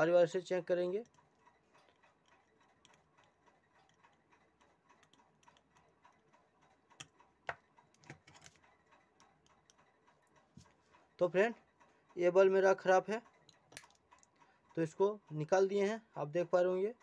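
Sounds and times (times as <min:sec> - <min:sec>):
metal tweezers tapping circuit board: 0:00.8 - 0:10.4.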